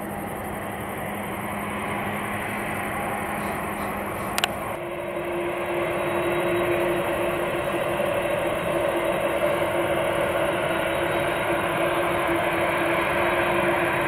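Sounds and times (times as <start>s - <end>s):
jet engine noise: 0.0s - 14.0s.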